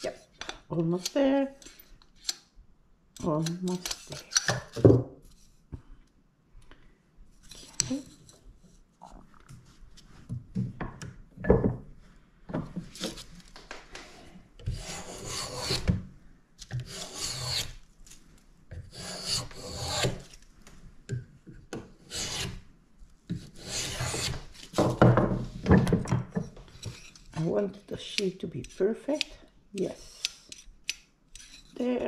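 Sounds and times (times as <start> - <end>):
hand plane shaving wood: 14.7 - 15.9, 16.8 - 17.8, 18.9 - 20.2, 22.1 - 22.6, 23.4 - 24.5.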